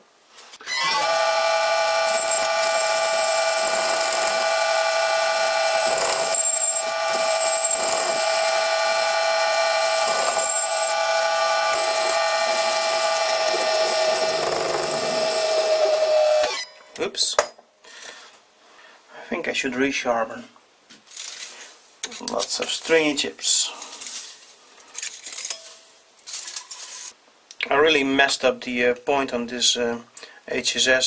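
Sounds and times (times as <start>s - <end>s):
cutting tool squealing: 0.6s - 16.8s
lathe motor whining: 0.7s - 16.6s.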